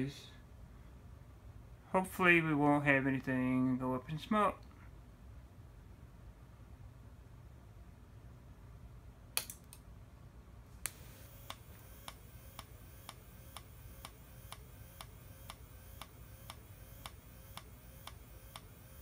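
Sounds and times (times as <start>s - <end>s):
strobe flash ticking: 10.8s - 19.0s.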